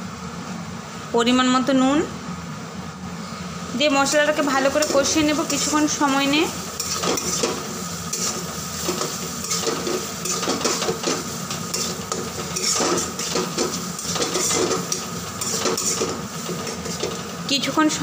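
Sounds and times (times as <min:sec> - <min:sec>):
oil sizzling: 0:03.7 - 0:18.0
spatula scraping metal pan: 0:06.8 - 0:17.2.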